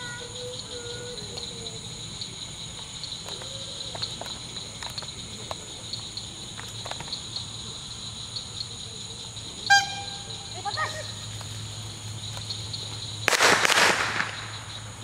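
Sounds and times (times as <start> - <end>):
crickets chirping: 0.0 - 15.0
loud whistle blast: 9.7 - 10.2.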